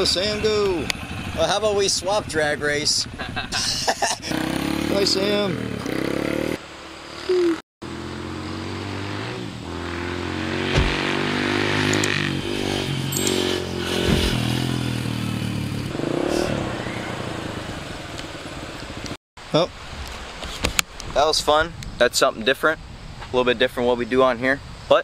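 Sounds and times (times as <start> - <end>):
dirt bike engine accelerating: 0.0 - 3.4, 4.2 - 6.6, 7.8 - 19.2.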